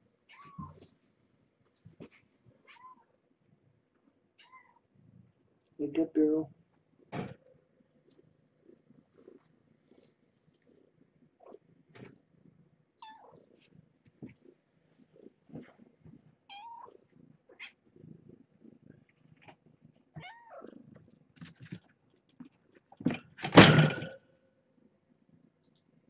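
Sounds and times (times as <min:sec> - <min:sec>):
kittens meowing: 0:00.3 - 0:00.9, 0:13.0 - 0:13.5, 0:20.2 - 0:20.8.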